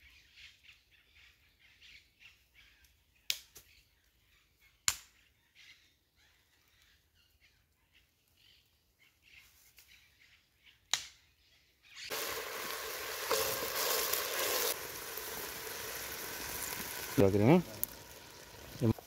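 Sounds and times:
food sizzling in oil: 12.1 - 19.0.

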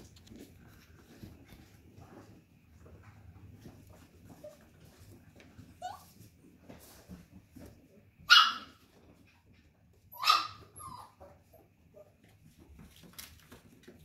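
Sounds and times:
puppy barking high-pitched: 8.2 - 8.8, 10.1 - 11.2.

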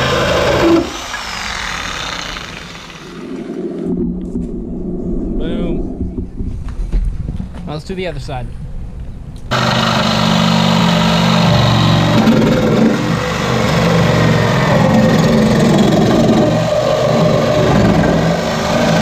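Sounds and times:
reciprocating saw cutting bumper: 0.0 - 4.0, 9.5 - 19.0.

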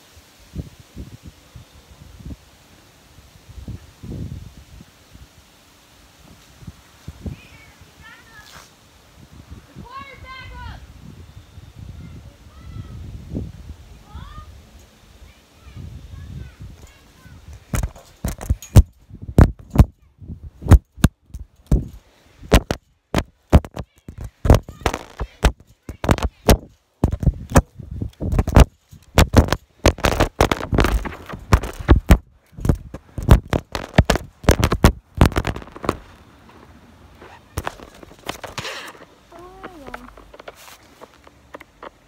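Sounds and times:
thumps on phone microphone: 17.7 - 19.9, 22.5 - 27.7, 28.3 - 36.0, 37.6 - 38.7.

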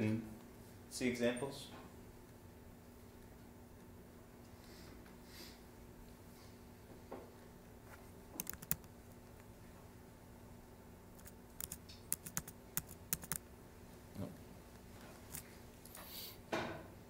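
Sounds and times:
computer keyboard keystrokes: 8.4 - 8.9, 11.2 - 13.4.

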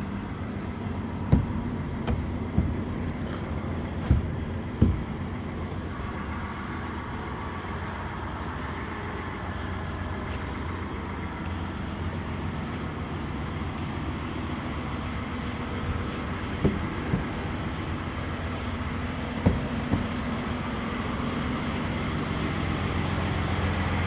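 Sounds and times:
diesel truck engine idling: 0.0 - 24.0
short knocks: 1.2 - 5.2, 16.6 - 17.6, 19.4 - 20.3.

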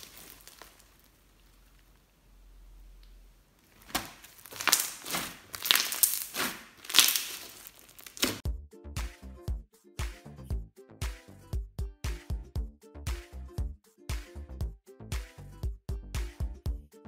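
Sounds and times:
slime squishing: 0.0 - 8.4
electronic music with beat: 8.4 - 17.0.

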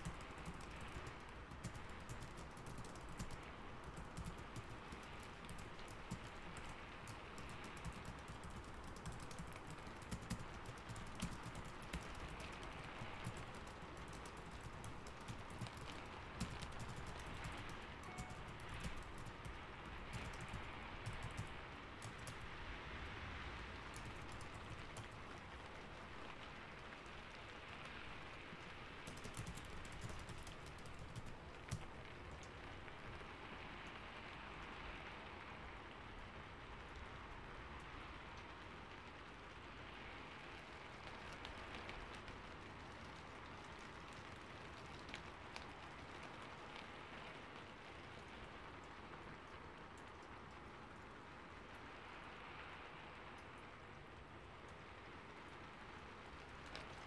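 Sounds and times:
computer keyboard typing: 0.0 - 22.5, 23.9 - 25.4, 29.0 - 32.5
steady rain: 0.0 - 57.0.

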